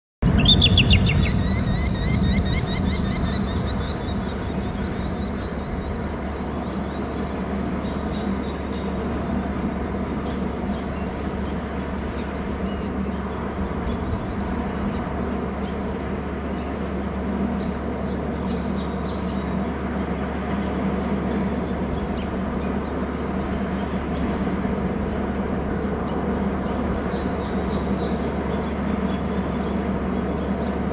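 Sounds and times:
low rumble: 0.2 - 6.6
eagles chittering calls: 0.3 - 6.0.

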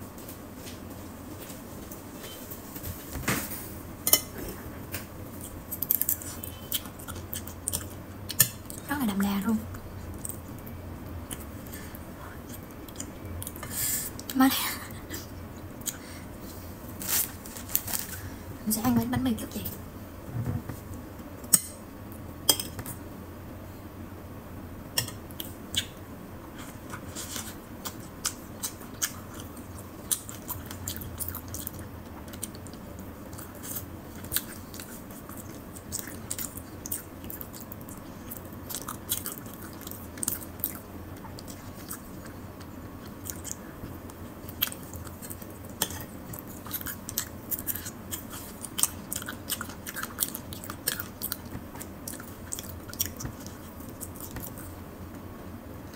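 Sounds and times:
person chewing bread: 5.3 - 8.9, 9.7 - 14.4, 25.3 - 54.8.

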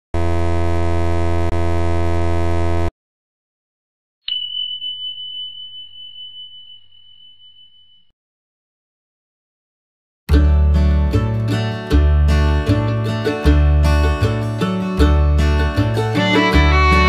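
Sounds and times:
loud electrical buzz: 0.1 - 2.9
high bell ding: 4.3 - 8.1.

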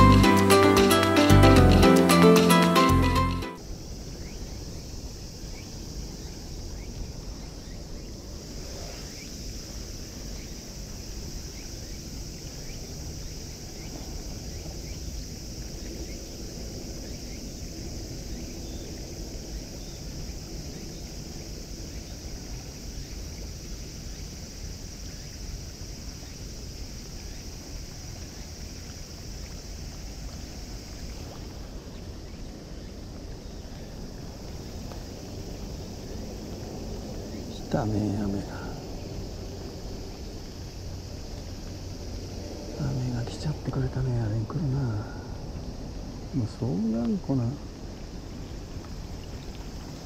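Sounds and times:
wind rumble on microphone: 3.6 - 50.0
light rain pattering on water: 9.1 - 50.0.

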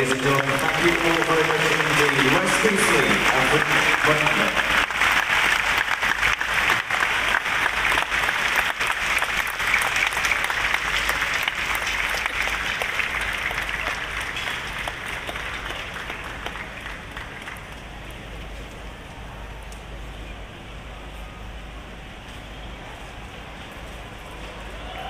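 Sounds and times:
crowd applauding: 0.0 - 18.4, 24.2 - 25.0.

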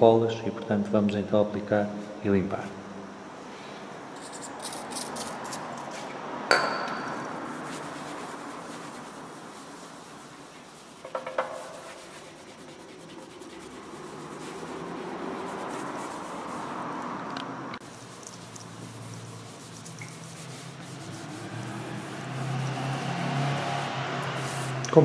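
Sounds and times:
sharp knock with ring: 6.5 - 7.1
cloth rubbing on metal tank: 7.4 - 16.9, 17.8 - 24.8.

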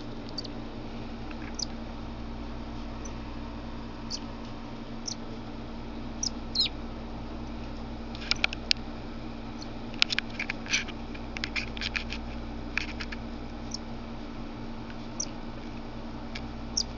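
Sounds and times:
bird squeaky chirps: 0.3 - 0.5, 1.5 - 1.7, 6.2 - 6.7.

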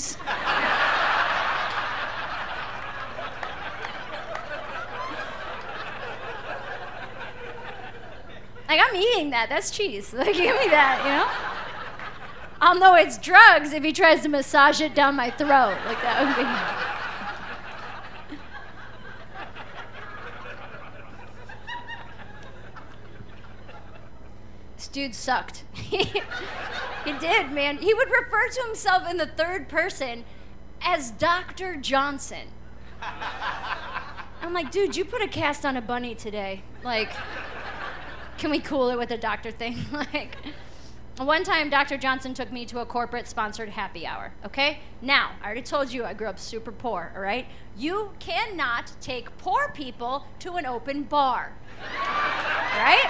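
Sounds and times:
audience laughing: 0.2 - 8.7, 10.2 - 12.6, 15.0 - 24.4, 25.8 - 28.1, 32.8 - 35.2, 36.8 - 38.6, 51.7 - 53.0.

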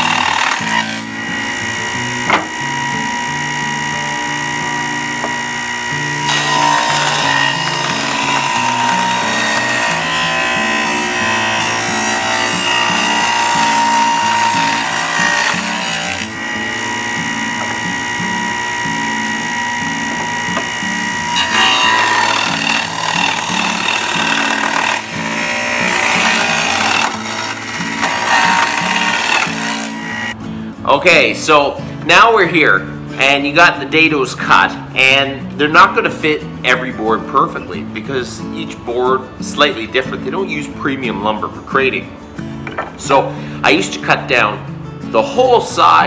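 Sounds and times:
table saw cutting wood: 0.0 - 30.4.

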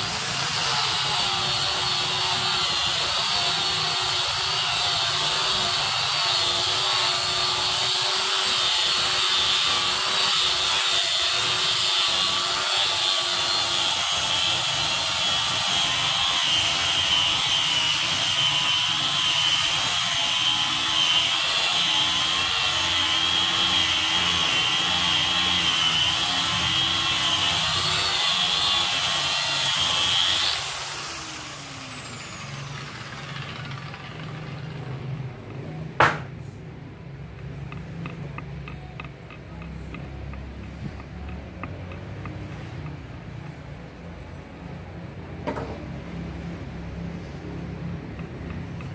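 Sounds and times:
electric sander whining: 0.0 - 35.8.

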